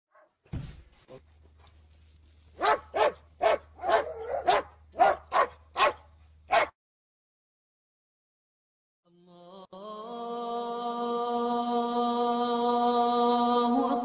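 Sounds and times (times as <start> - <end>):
low steady hum: 0.6 - 6.6
dog barking: 2.6 - 6.8.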